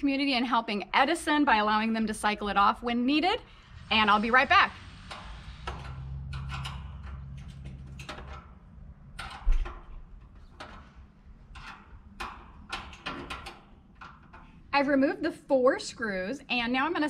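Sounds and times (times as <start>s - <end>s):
hand tool clicking on screws: 11.5s - 14.6s.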